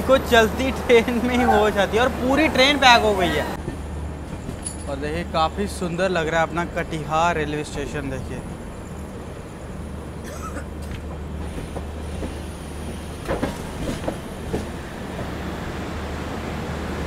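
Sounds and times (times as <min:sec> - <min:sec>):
train rolling rumble: 0:00.0 - 0:17.0
sharp clacks from train wheels: 0:03.6 - 0:05.0, 0:10.8 - 0:15.4.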